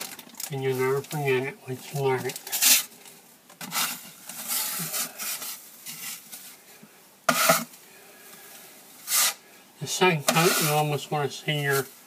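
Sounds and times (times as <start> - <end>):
drywall knife scraping wall: 7.3 - 7.7, 9.1 - 9.4, 10.2 - 10.9.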